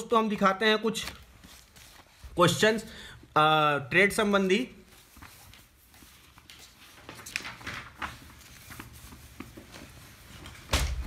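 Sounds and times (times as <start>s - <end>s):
paper rustling: 0.8s - 2.8s, 4.2s - 11.0s
thump: 10.7s - 11.0s.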